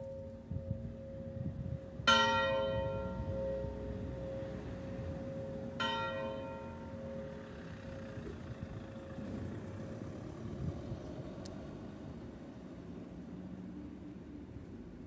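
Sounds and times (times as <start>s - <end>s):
bells humming: 0.0s - 9.3s
church bell stroke: 2.1s - 8.0s.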